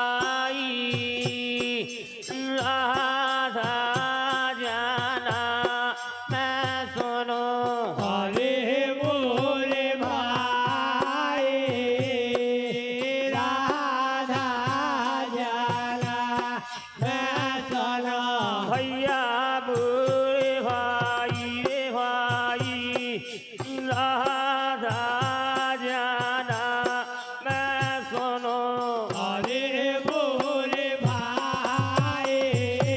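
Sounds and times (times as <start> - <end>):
voices singing: 0.0 - 32.9
jingling cymbal strokes: 0.2 - 8.5
drum beat: 6.3 - 32.9.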